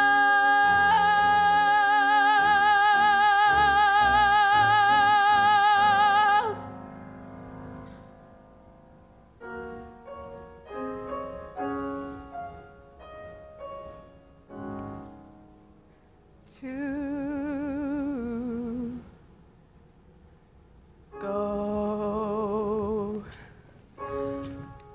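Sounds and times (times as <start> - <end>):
woman singing long note: 0.0 - 6.8, 21.2 - 23.3
soft piano chords: 0.0 - 24.9.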